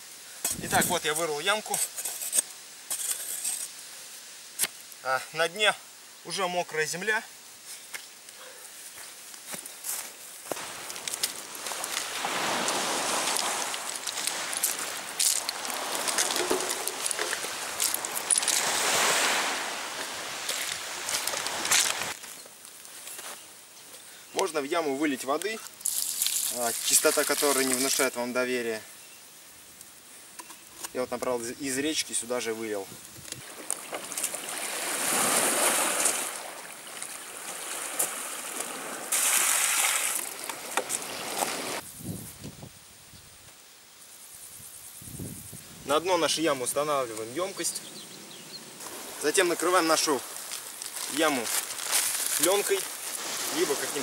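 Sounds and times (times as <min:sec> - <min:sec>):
footsteps crunching on pebbles: 0:08.8 - 0:23.4, 0:25.8 - 0:28.1, 0:37.8 - 0:41.8, 0:48.8 - 0:54.0
rushes of water: 0:10.6 - 0:22.2, 0:33.4 - 0:41.8, 0:48.8 - 0:54.0
sea water splashing on beach: 0:10.6 - 0:22.2, 0:25.9 - 0:28.1, 0:33.4 - 0:41.8, 0:48.8 - 0:54.0
pebbles clicking: 0:13.2 - 0:18.7, 0:25.8 - 0:28.0.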